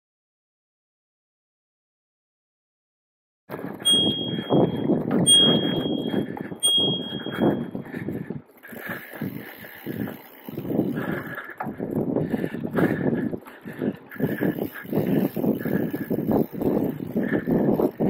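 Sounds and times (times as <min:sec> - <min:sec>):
bike rolling on dirt trail: 0:03.5 - 0:18.0
bicycle bell ringing: 0:03.8 - 0:07.9.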